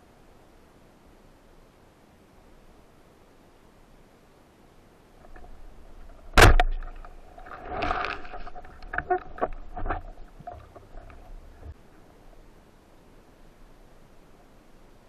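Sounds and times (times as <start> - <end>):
speargun crack underwater: 5.2 - 11.7
water commotion: 5.2 - 11.8
knocks and clicks from gun: 6.1 - 7.1.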